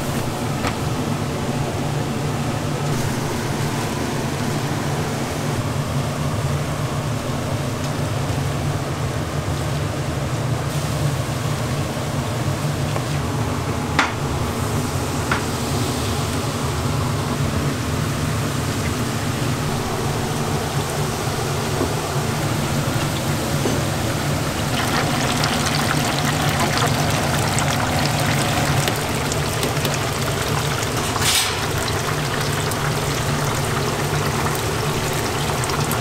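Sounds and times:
ventilation fan humming: 0.0s - 36.0s.

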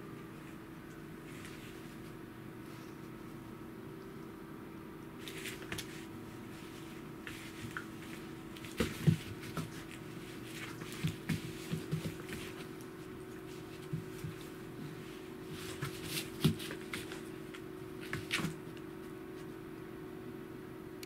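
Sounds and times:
animals scuffling on wooden floor: 5.2s - 19.6s.

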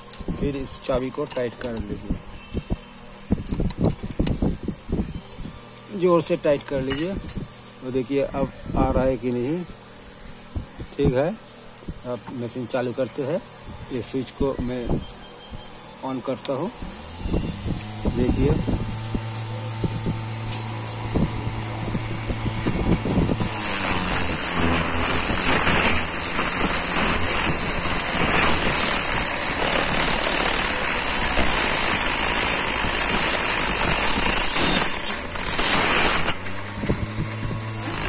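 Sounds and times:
cutter wheel whining and grinding: 12.3s - 38.0s
small motor humming: 14.9s - 38.0s.

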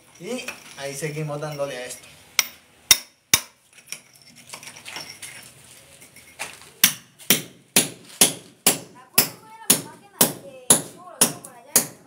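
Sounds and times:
hammer striking metal chisel: 2.4s - 4.0s, 6.8s - 12.0s.

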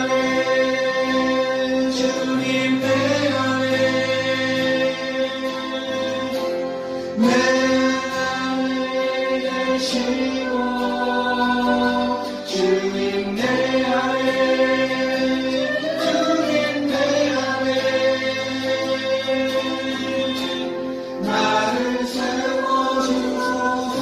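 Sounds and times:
group singing worship song: 0.0s - 24.0s
live band accompaniment: 0.0s - 24.0s.

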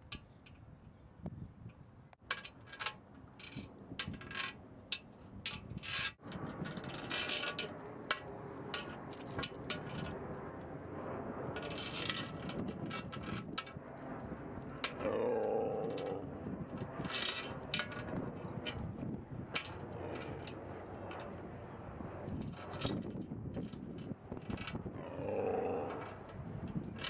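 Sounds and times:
chain leash clinking on metal: 9.1s - 10.4s.

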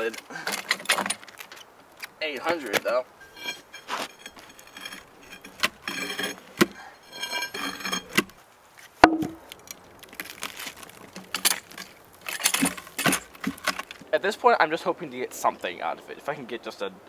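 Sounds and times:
log scraping: 0.0s - 15.7s
wooden knocks: 9.0s - 9.5s.

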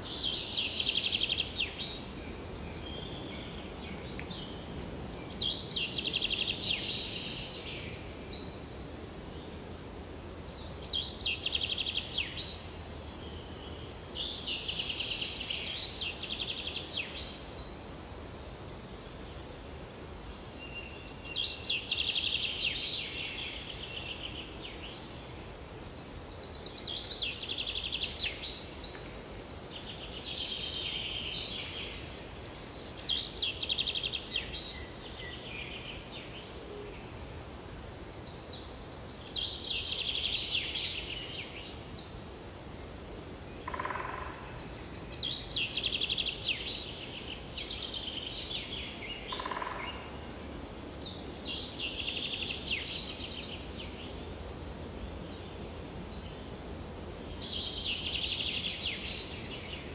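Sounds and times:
steady background hiss: 0.0s - 59.9s
songbird trilling: 43.7s - 44.6s, 49.3s - 50.2s.

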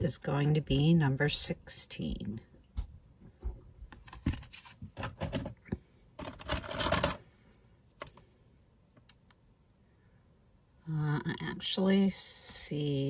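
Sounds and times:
jewelry rattling in wooden box: 6.2s - 7.2s
metal jewelry clinking: 6.2s - 8.3s.

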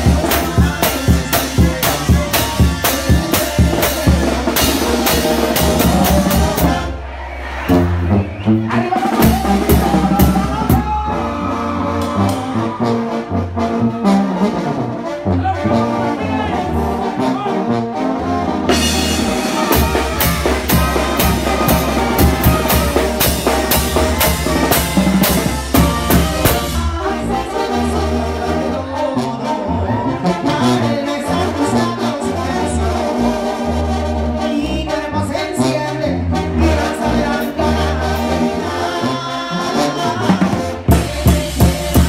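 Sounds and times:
drum kit: 0.0s - 6.9s, 7.6s - 11.3s, 18.7s - 27.6s, 40.3s - 42.0s
brass band playing: 0.0s - 42.0s.

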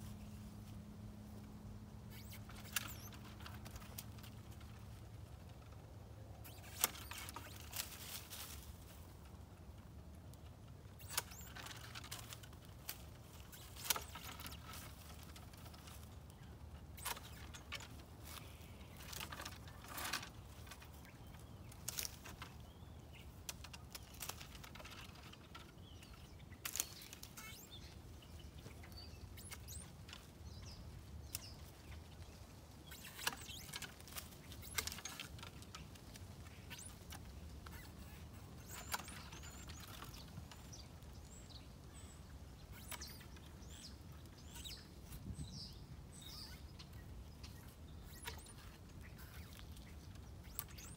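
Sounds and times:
small birds chirping: 0.0s - 50.9s
loppers snipping branches: 26.0s - 27.7s.

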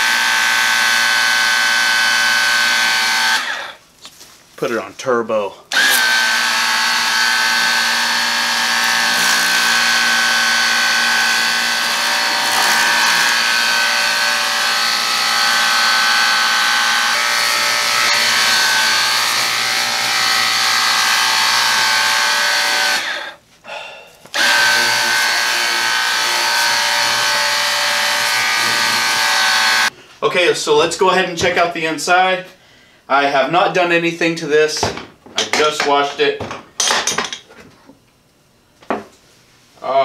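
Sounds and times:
power washer motor whine: 0.0s - 3.8s, 5.7s - 23.4s, 24.3s - 29.9s.

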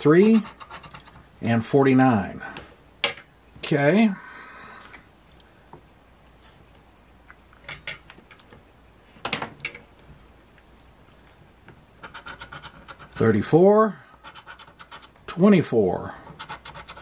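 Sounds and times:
spoon scratching lottery ticket: 0.0s - 1.3s, 12.0s - 13.4s, 14.2s - 15.3s, 16.2s - 17.0s.

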